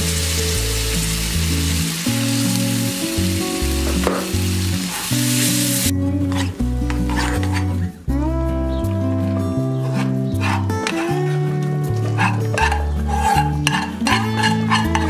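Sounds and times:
broth sizzling in a pan: 0.0s - 5.9s
background music: 0.0s - 15.0s
spoon scraping through sauce: 6.3s - 7.8s, 9.8s - 11.3s, 12.0s - 15.0s.

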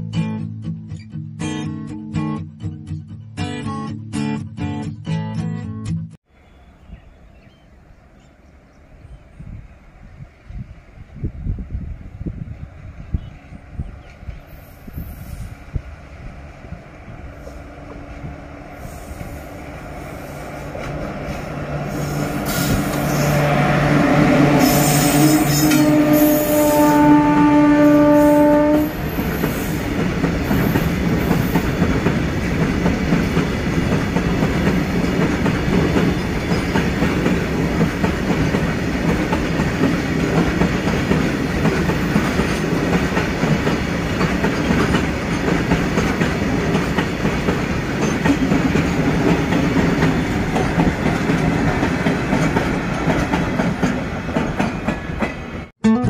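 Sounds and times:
locomotive horn: 21.8s - 29.8s
train wagons clattering over rail joints: 29.2s - 55.5s.

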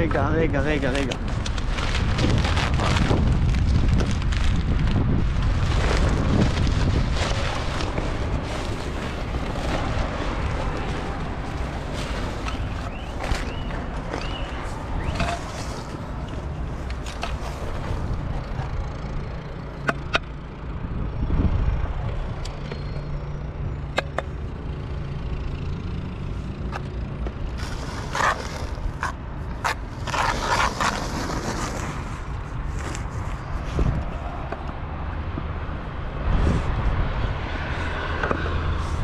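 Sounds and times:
scraping: 27.5s - 33.9s.

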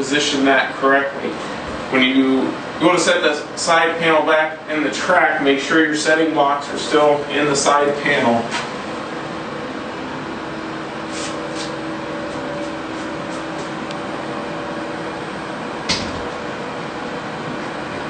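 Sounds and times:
steady low hum: 0.0s - 18.0s
sharp knock: 15.9s - 16.2s.

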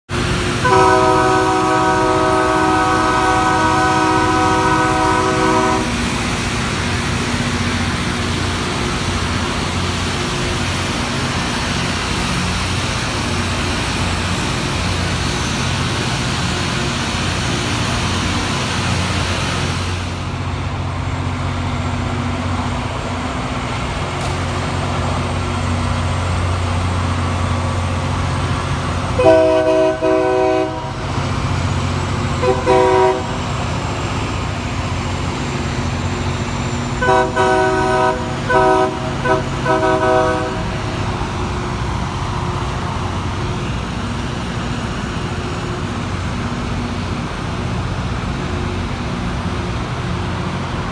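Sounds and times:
rail grinding noise: 0.1s - 50.9s
multi-note train horn: 0.6s - 6.1s, 29.1s - 31.0s, 32.4s - 33.4s, 37.0s - 40.8s.

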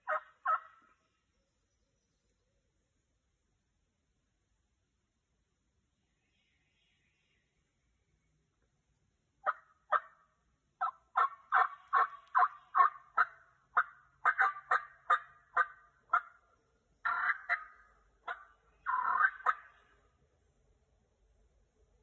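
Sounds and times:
turkey yelping: 0.0s - 0.8s, 9.4s - 10.2s, 10.8s - 16.4s, 17.0s - 19.8s.

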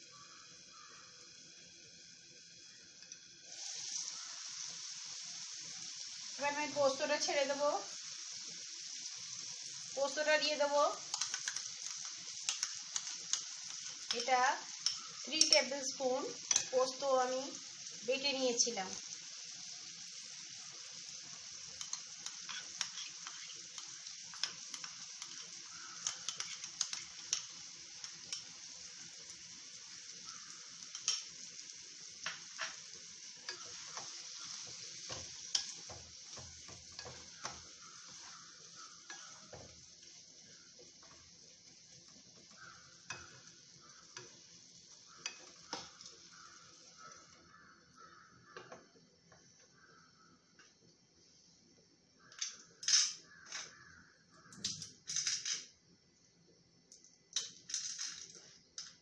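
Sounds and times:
vegetables sizzling in a pan: 0.0s - 59.0s
spatula scraping a pan: 21.8s - 27.5s, 32.2s - 41.3s, 42.4s - 44.4s, 45.1s - 47.3s.

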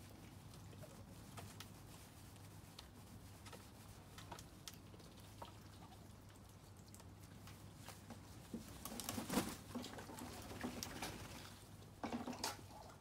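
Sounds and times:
low steady hum: 0.0s - 13.0s
faint irregular ticks: 0.1s - 9.0s.

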